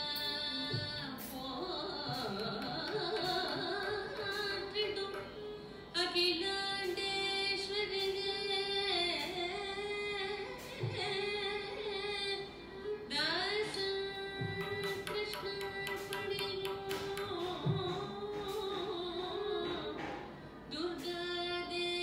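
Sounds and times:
drum strokes: 0:00.7 - 0:05.5, 0:14.4 - 0:20.5.

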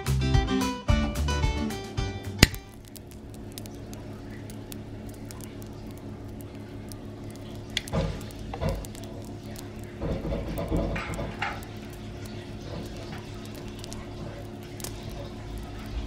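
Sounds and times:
sharp click: 0:02.4 - 0:02.7.

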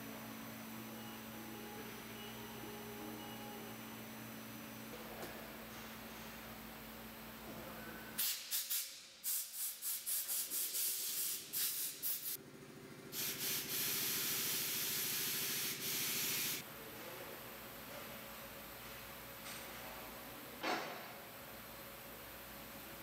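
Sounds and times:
compressed air blowgun hissing blasts: 0:13.2 - 0:16.6.

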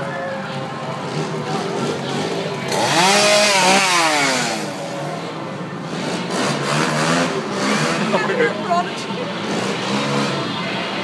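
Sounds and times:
chainsaw revving: 0:02.7 - 0:04.8.

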